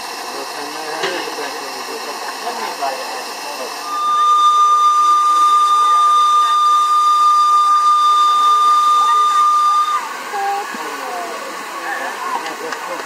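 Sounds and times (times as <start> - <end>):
faint crowd voices: 0.2 - 13.0
high-pitched steam whistle blast: 3.6 - 10.6.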